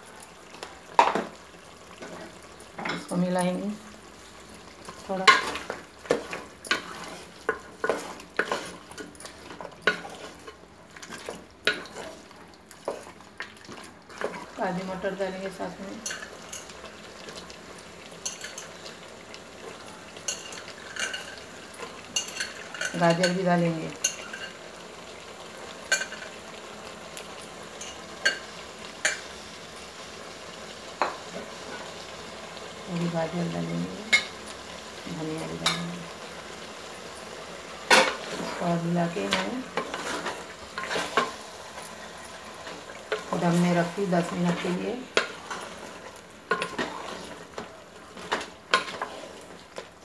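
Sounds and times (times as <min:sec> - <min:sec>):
chicken sizzling: 0:00.0 - 0:50.0
wooden spoon scraping a metal pot: 0:05.2 - 0:12.3, 0:39.2 - 0:41.4, 0:43.1 - 0:47.6, 0:48.2 - 0:49.5.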